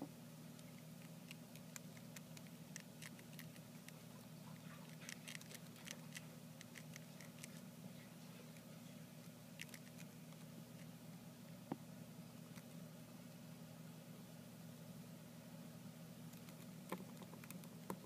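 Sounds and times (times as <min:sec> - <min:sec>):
hamsters nibbling seeds: 0:00.5 - 0:11.8, 0:12.4 - 0:13.5, 0:16.2 - 0:18.0.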